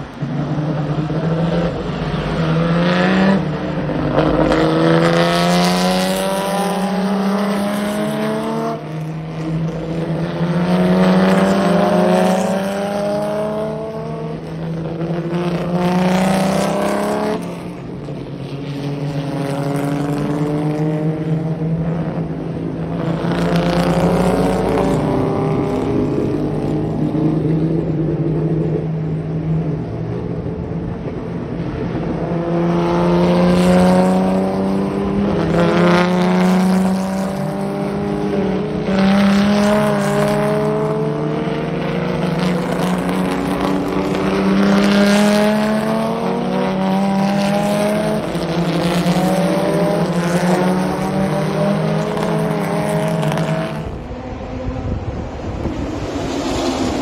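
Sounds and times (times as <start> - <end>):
race car engines accelerating: 0.0 - 57.0.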